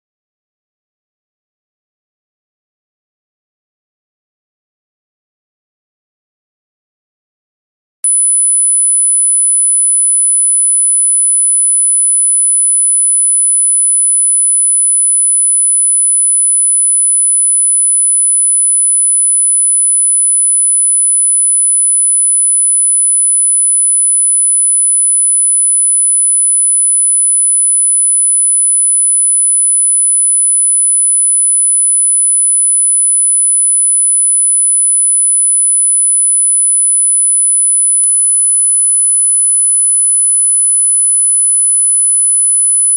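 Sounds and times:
high-pitched sine tone: 8.1s - 20.6s, 32.4s - 42.9s.

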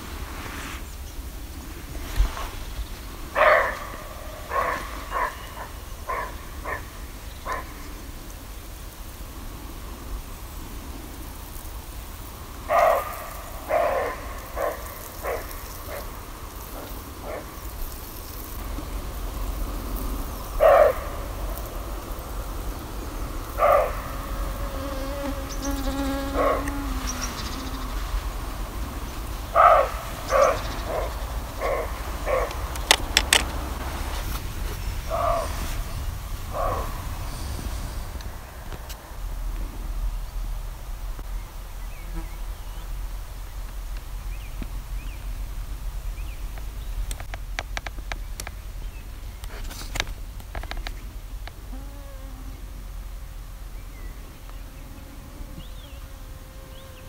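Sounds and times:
low fly drone: 0.0s - 41.2s
flies and mosquitoes buzzing: 10.2s - 39.0s, 50.5s - 53.0s, 54.3s - 57.0s
sharp clicks: 32.4s - 33.6s.

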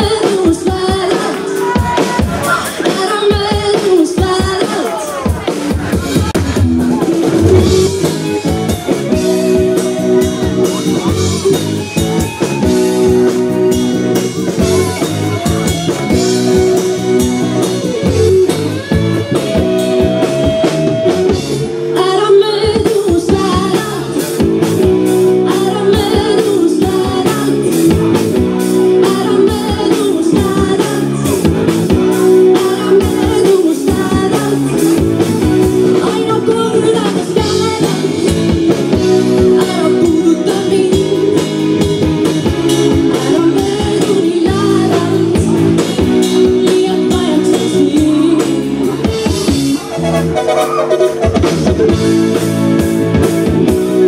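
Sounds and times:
drum kit: 0.0s - 54.0s
electric guitar: 0.0s - 54.0s
person singing: 21.9s - 24.4s, 25.2s - 51.3s.

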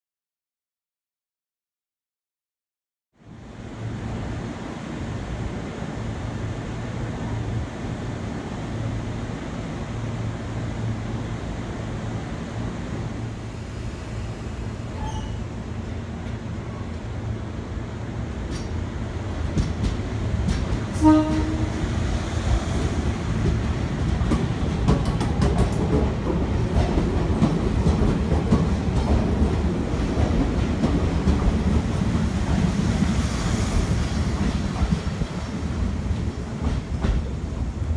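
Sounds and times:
train rumbling past: 3.2s - 37.9s
train horn blast: 20.9s - 22.0s.

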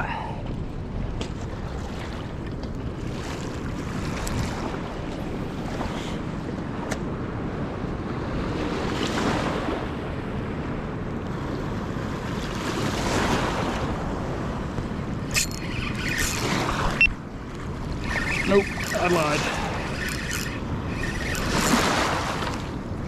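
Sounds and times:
wind on microphone: 0.0s - 23.0s
fast river current: 15.0s - 23.0s.

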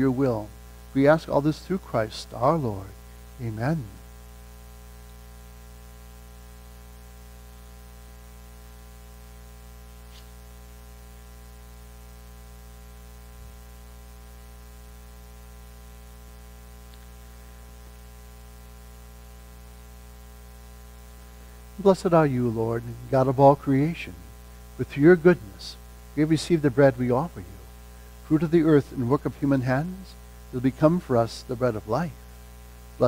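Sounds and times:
electrical mains hum: 0.0s - 33.0s
faint hiss: 0.0s - 33.0s
faint click: 16.9s - 17.1s.

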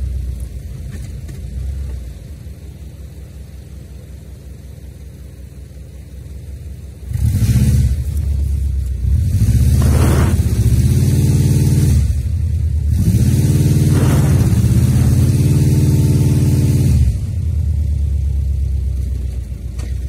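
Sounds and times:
car engine revving: 6.9s - 20.0s.

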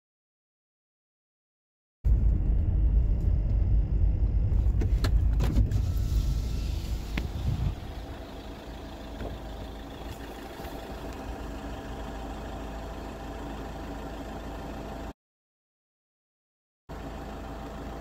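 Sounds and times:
vehicle engine idling: 2.1s - 15.1s, 16.9s - 18.0s.

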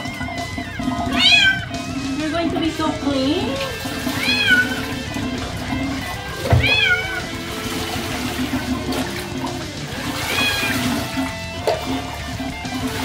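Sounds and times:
background music: 0.0s - 13.0s
bath water sloshing: 0.0s - 13.0s
kitten meowing: 1.0s - 1.8s, 4.1s - 5.0s, 6.5s - 7.3s, 10.2s - 10.9s.

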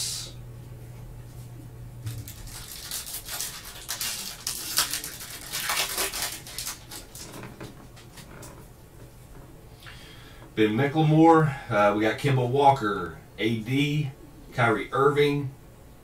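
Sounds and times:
foil wrapper tearing and crinkling: 2.0s - 8.3s.

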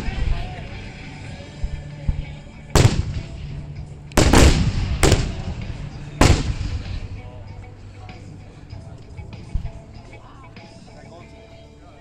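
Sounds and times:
firework shells bursting: 4.2s - 7.1s.

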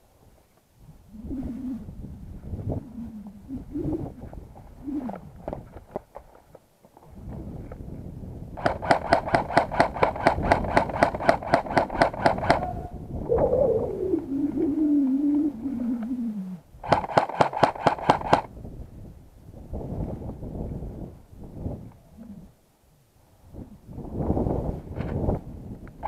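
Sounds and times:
airsoft gun firing bursts: 8.6s - 12.7s, 16.8s - 18.5s.

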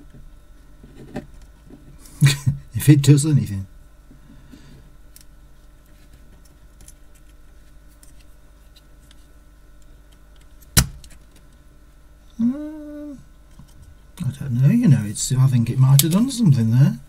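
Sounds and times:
person humming: 12.3s - 13.3s
desoldering pump snapping: 15.9s - 16.3s.

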